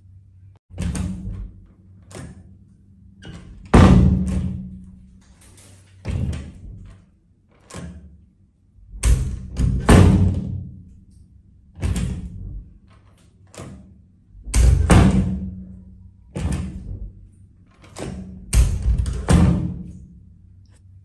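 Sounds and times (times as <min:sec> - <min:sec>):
door latch clacking: 0:07.6 - 0:08.1.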